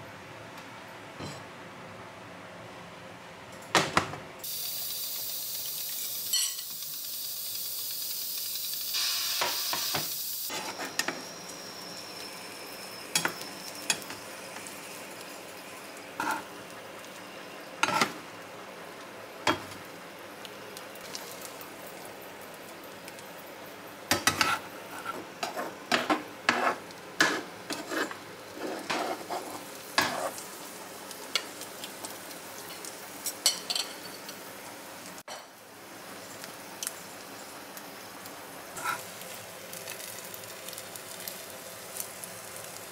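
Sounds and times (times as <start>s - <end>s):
egg sizzling in oil: 4.4s - 23.2s, 24.1s - 34.5s, 35.1s - 42.9s
metal spatula scraping pan: 26.5s - 30.3s, 38.8s - 39.0s.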